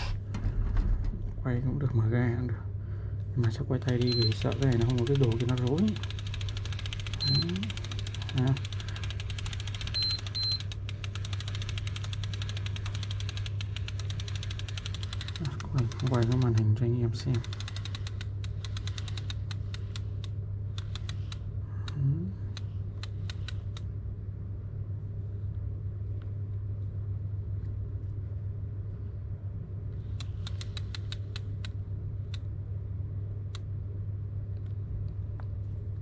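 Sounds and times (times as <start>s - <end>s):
steady low hum: 0.0s - 36.0s
fishing reel clicking: 3.9s - 16.6s, 17.3s - 20.0s.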